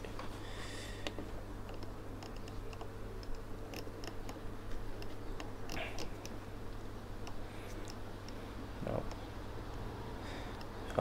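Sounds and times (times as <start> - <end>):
faint steady hum: 0.0 - 11.0
control dial clicking: 1.0 - 4.4.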